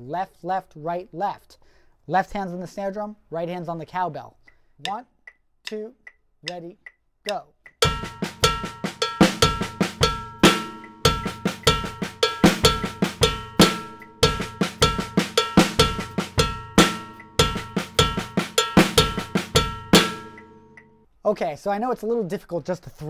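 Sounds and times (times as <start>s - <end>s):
snare drum notes: 7.3s - 20.8s
bass drum beats: 7.8s - 20.9s
cowbell strokes: 7.8s - 21.0s.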